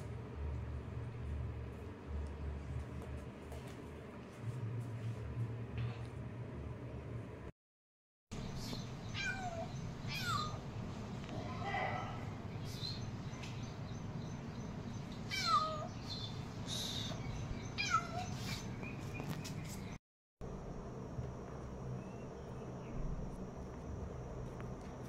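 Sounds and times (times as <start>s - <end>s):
low background hum: 0.0s - 7.5s, 8.4s - 25.0s
kitten meowing: 9.2s - 10.6s, 15.3s - 15.9s.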